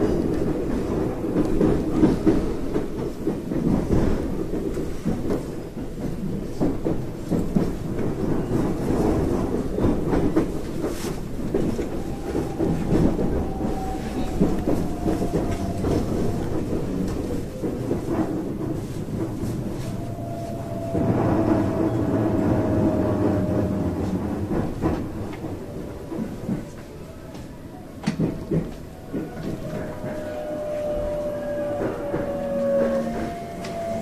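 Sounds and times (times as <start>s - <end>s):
train rumble: 0.0s - 34.0s
wheels clacking over rail joints: 0.0s - 34.0s
faint whine: 11.4s - 27.5s.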